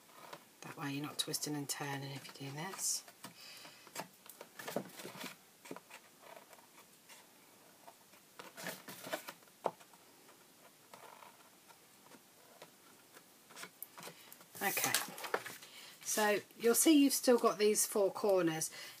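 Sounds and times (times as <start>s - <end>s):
card rustling: 8.4s - 9.9s.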